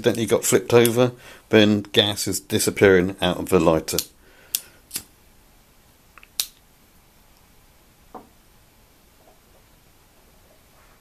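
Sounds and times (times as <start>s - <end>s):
lighter cap clicks: 6.2s - 6.6s.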